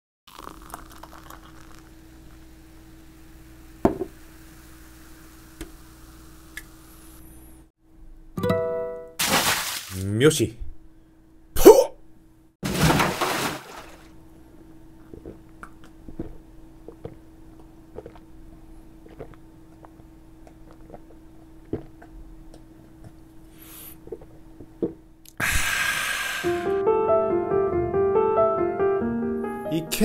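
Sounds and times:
faint steady hum: 0.3s - 8.4s, 10.0s - 12.6s, 13.6s - 26.8s
piano music: 8.4s - 9.2s, 26.5s - 30.0s
person swallowing: 15.0s - 17.2s, 18.0s - 18.3s, 19.0s - 22.2s, 24.0s - 26.4s
breathy rush of air: 25.4s - 26.8s.

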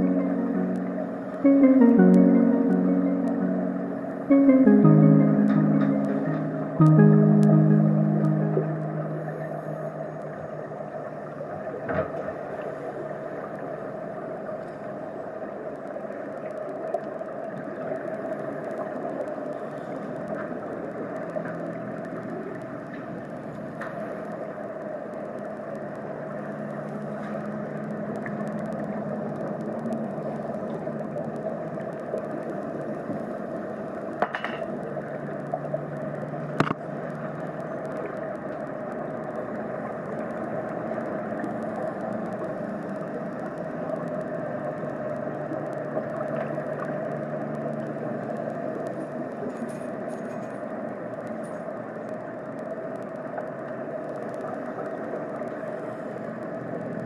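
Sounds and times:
muffled underwater drone: 0.0s - 57.0s.

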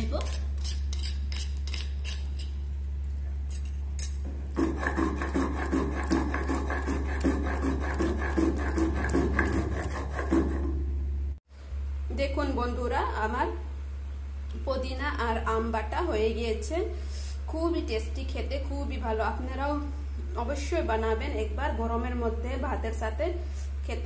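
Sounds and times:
stone roller grinding on stone slab: 4.4s - 10.8s.

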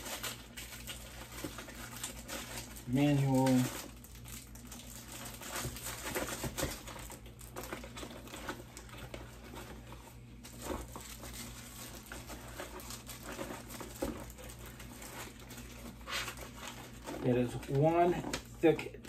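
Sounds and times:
packaging rustling and crinkling: 0.0s - 18.8s.

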